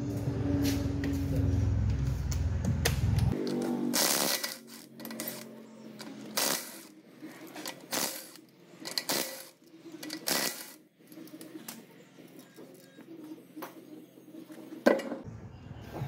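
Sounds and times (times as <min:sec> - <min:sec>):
impact wrench spinning lug nuts: 0:03.3 - 0:12.8.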